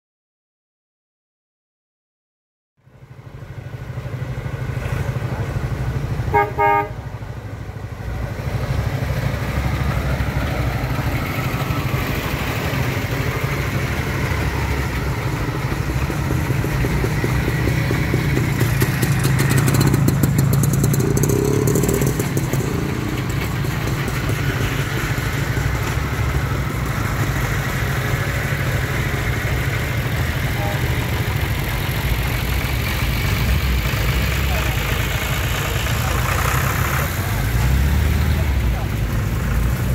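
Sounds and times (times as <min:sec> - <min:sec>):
car engines running: 0:02.8 - 0:39.9
car horn toots: 0:06.3 - 0:07.1.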